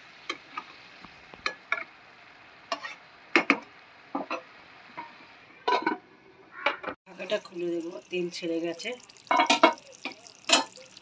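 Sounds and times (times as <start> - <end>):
faint frying sizzle: 0.0 - 5.8, 7.1 - 11.0
metal spatula scraping pot: 2.7 - 3.0.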